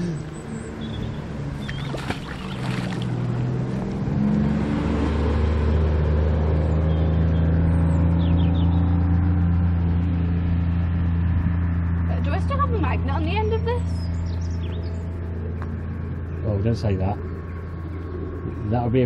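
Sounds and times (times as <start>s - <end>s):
engine droning: 0.0s - 19.0s
magnet splashing into water: 1.6s - 3.3s.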